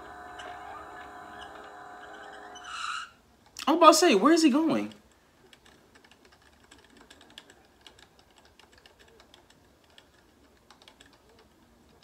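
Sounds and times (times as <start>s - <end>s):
faint clicking and tapping: 4.8s - 12.0s.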